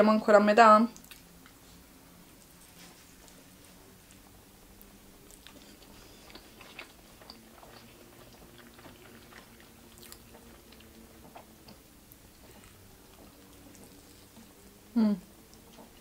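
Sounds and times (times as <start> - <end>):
faint steady hum: 0.0 - 16.0
person chewing wetly: 1.0 - 1.6, 4.1 - 14.8, 15.4 - 16.0.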